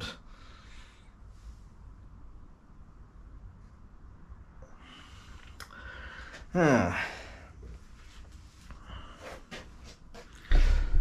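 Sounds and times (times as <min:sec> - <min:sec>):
man sighing: 0:05.6 - 0:07.5.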